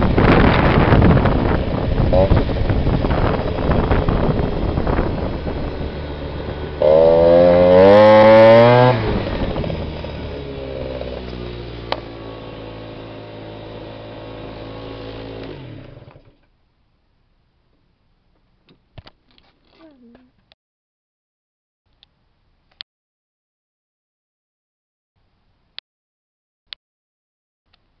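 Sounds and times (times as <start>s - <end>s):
scooter engine revving: 0.0s - 16.4s.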